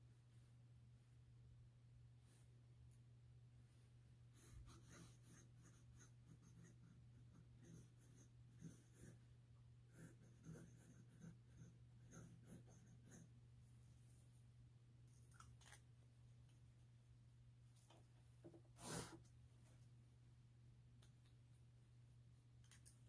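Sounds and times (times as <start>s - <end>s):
low steady hum: 0.0s - 23.0s
pen nib scratching paper: 4.4s - 13.4s.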